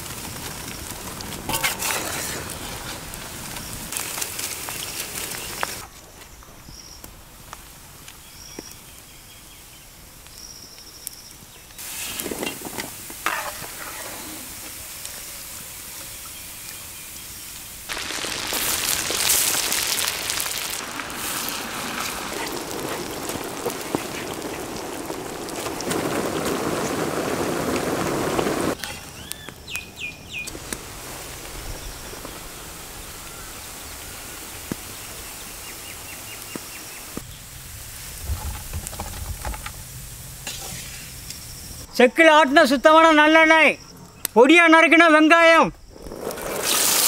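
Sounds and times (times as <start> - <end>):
quiet hiss with light ticks: 10.0 - 13.2
meat sizzling in hot oil: 11.7 - 29.5, 46.6 - 47.0
bird chirping: 29.1 - 30.5.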